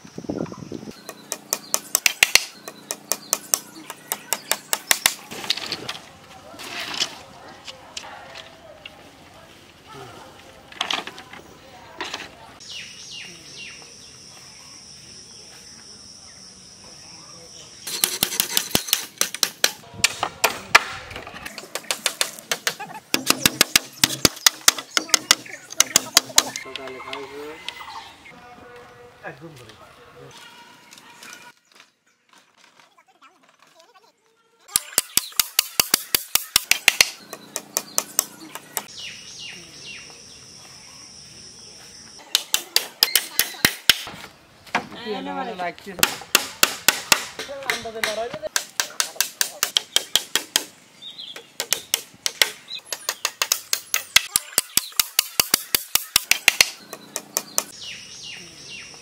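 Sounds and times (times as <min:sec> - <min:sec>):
bird chirping: 0:00.0 - 0:05.7, 0:12.6 - 0:19.3, 0:21.5 - 0:28.5, 0:34.8 - 0:44.7, 0:48.9 - 0:59.0
knocks on bamboo poles: 0:01.0 - 0:05.2, 0:17.9 - 0:26.9, 0:34.8 - 0:38.9, 0:42.2 - 0:45.0, 0:46.0 - 0:50.7, 0:51.3 - 0:57.7.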